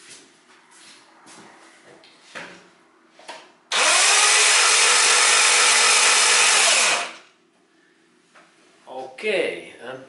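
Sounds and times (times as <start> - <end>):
car engine cranked by starter motor: 3.7 - 7.2.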